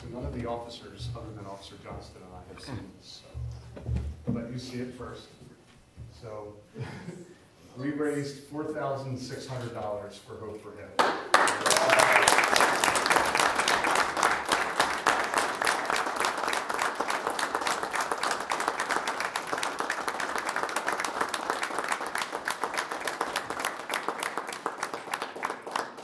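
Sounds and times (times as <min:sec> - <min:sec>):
audience applauding: 0:11.0 - 0:26.0.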